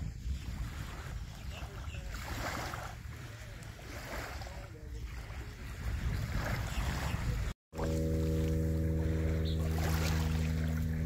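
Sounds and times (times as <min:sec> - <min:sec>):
small waves washing onto sand: 0:00.0 - 0:07.5
wind buffeting microphone: 0:00.0 - 0:11.0.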